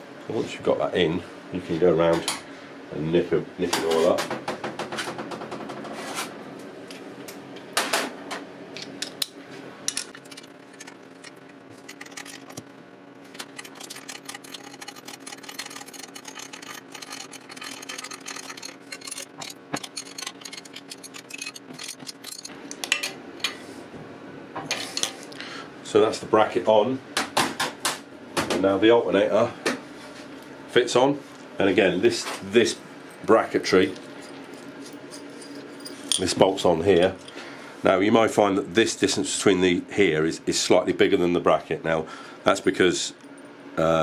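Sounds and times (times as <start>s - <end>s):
hand ratchet clicking: 13.4s - 22.5s
faint steady hum: 28.1s - 44.0s.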